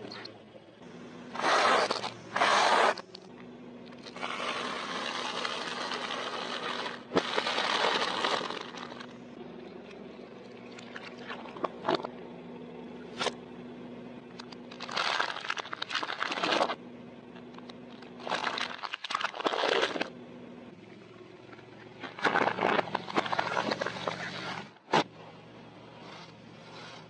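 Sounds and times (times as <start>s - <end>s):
low steady hum: 0.0s - 27.0s
tyre crushing brittle objects: 4.0s - 9.2s, 14.4s - 16.8s, 17.9s - 20.1s.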